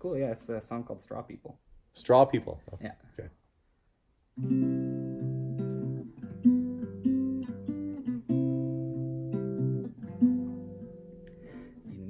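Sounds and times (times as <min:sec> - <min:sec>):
acoustic guitar chords: 0:04.4 - 0:12.0.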